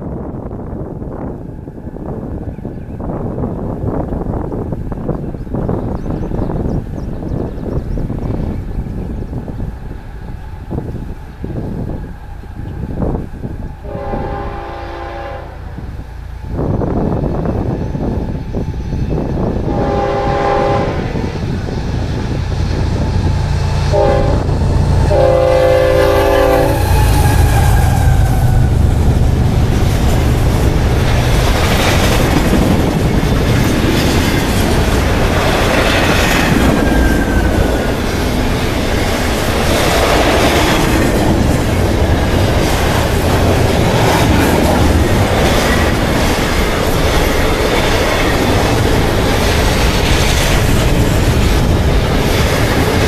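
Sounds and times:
locomotive rumbling past: 0.0s - 53.0s
locomotive air horn blasts: 13.8s - 15.9s, 19.7s - 21.4s, 23.8s - 28.8s
train wheels clattering on rails: 26.3s - 53.0s.

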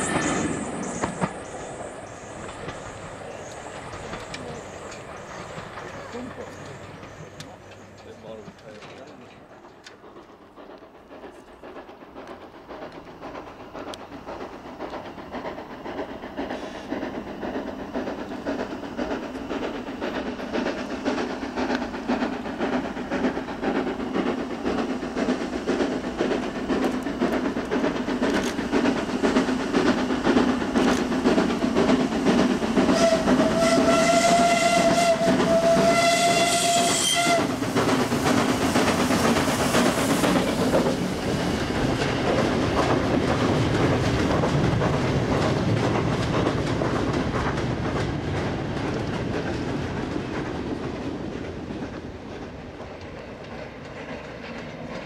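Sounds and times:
freight wagons rumbling on rails: 0.0s - 55.0s
steam locomotive exhaust beats: 0.0s - 55.0s
steam whistle blast: 32.9s - 37.6s.

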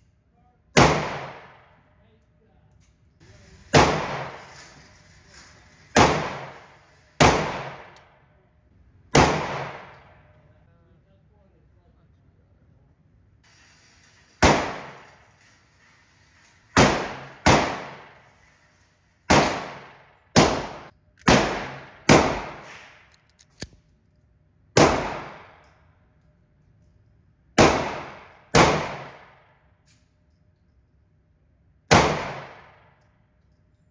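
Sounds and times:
gunshots ringing indoors: 0.7s - 1.9s, 3.3s - 8.4s, 9.1s - 10.4s, 13.5s - 15.5s, 16.1s - 23.2s, 24.8s - 26.0s, 27.6s - 29.9s, 31.8s - 33.3s.

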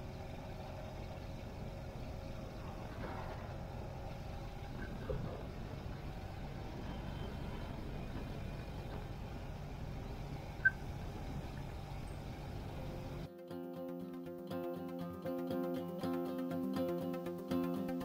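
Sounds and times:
motorcycle engine running: 0.0s - 13.3s
wind and tyre noise: 0.0s - 13.3s.

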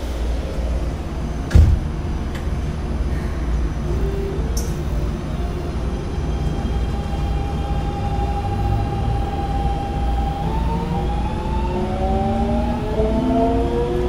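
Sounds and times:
wheels rumbling on rails: 0.0s - 14.0s
train motor whine with rising tones: 3.8s - 14.0s.

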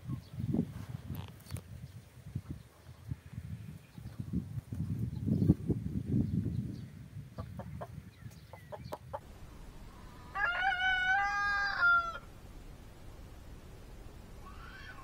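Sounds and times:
low rumble: 9.2s - 15.0s
rooster crowing: 9.4s - 12.7s.

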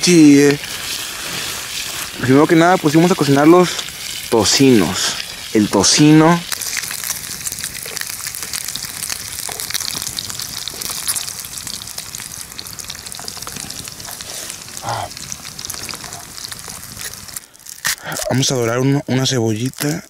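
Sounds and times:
bacon sizzling in a frying pan: 0.0s - 20.0s.

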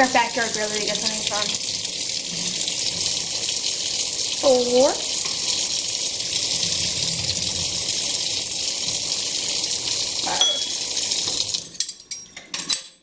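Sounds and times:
faucet running into metal sink: 0.0s - 12.0s
metal clinks in sink: 10.2s - 10.9s, 11.5s - 13.0s.

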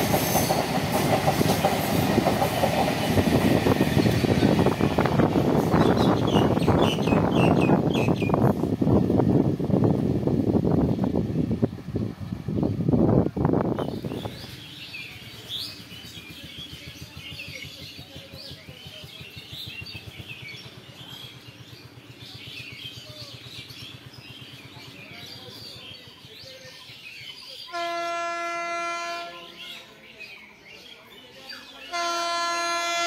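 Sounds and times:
birds chirping: 1.6s - 8.4s
train horn blast: 27.7s - 29.6s, 31.9s - 33.0s.

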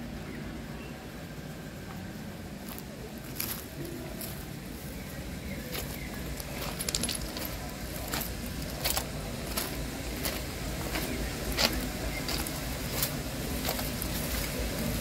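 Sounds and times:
low steady rumble: 0.0s - 15.0s
footsteps on gravel: 2.6s - 4.8s, 5.5s - 15.0s.

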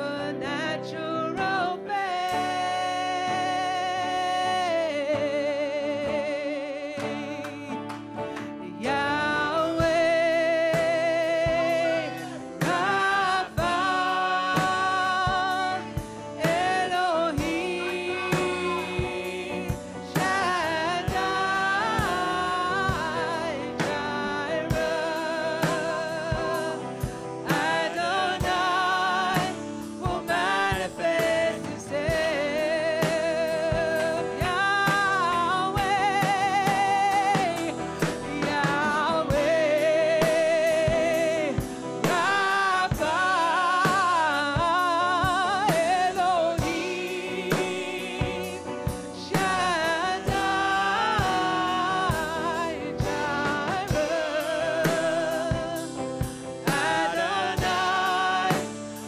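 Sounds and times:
worship band playing: 0.0s - 59.0s
singer holding notes with vibrato: 8.7s - 44.0s.

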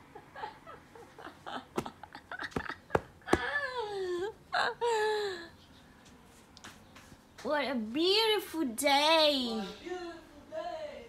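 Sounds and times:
woman laughing: 0.1s - 5.5s.

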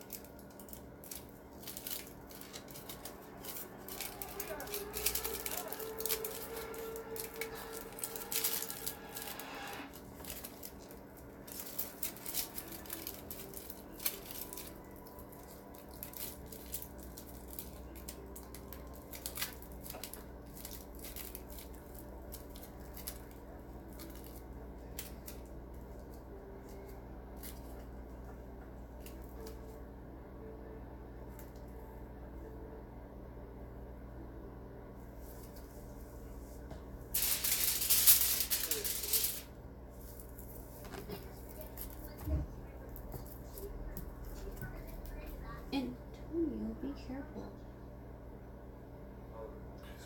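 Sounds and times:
aluminium foil crinkling: 0.0s - 29.8s, 37.1s - 45.6s
faint steady hum: 0.0s - 50.0s.

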